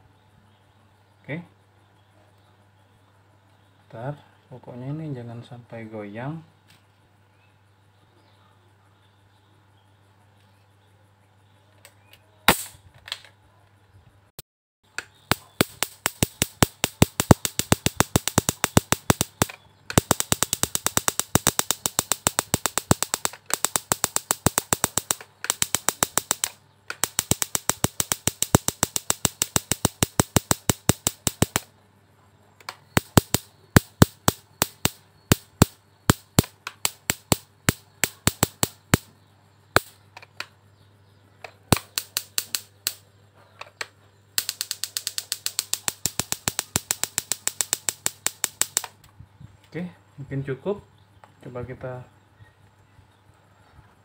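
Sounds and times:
electric sparks snapping: 0:12.5 - 0:12.8, 0:15.0 - 0:31.7, 0:32.7 - 0:39.1, 0:39.8 - 0:40.0, 0:41.7 - 0:43.0, 0:43.8 - 0:49.0.

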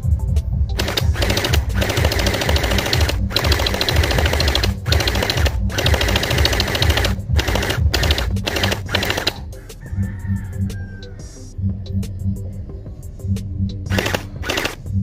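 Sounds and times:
gel blaster firing full auto: 0:00.8 - 0:09.4, 0:13.9 - 0:14.9.

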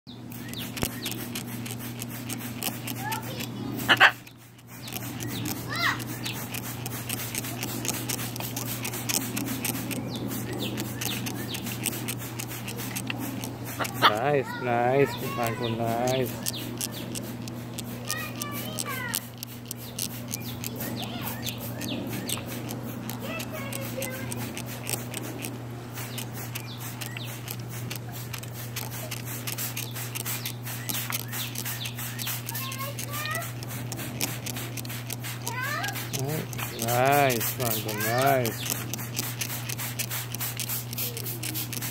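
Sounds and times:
steady low hum: 0:00.1 - 0:41.9
water spraying on wet feathers: 0:00.2 - 0:41.9
parrot chirps: 0:03.3 - 0:07.9.

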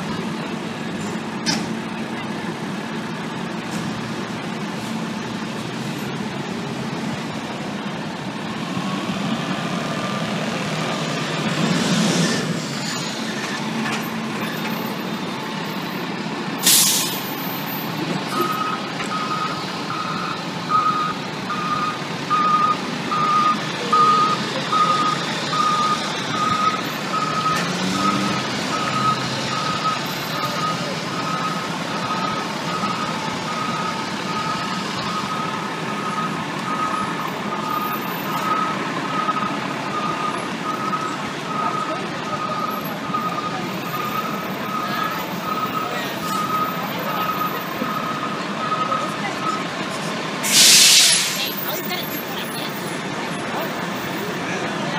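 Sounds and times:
fire engine running: 0:00.0 - 0:54.9
loud air hiss: 0:16.6 - 0:17.2, 0:50.4 - 0:51.6
reversing alarm beeping: 0:16.7 - 0:49.6.

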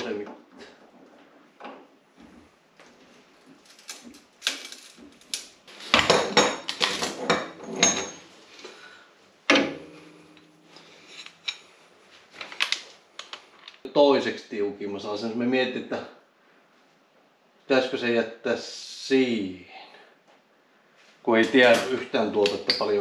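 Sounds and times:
metal tools clanking on shock: 0:06.3 - 0:08.3.

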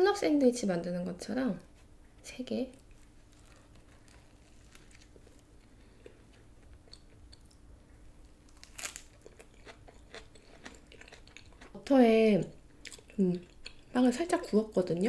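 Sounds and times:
crunching and chewing sandwich: 0:02.8 - 0:11.8.

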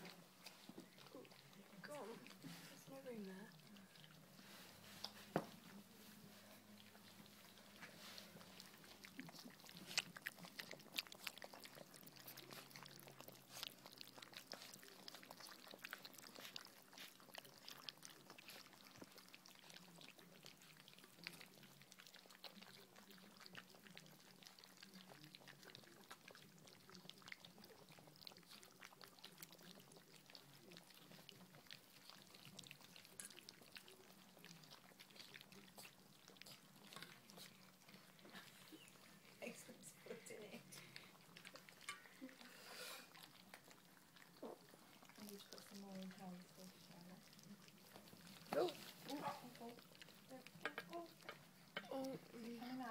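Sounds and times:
puppies lapping and slurping: 0:00.0 - 0:52.9.

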